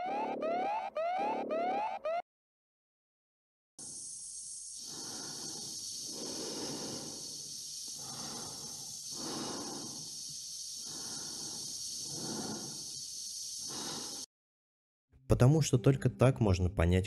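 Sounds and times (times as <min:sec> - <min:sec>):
steady high hiss: 0:03.8 - 0:14.3
heavy breathing in helmet: 0:04.8 - 0:14.3.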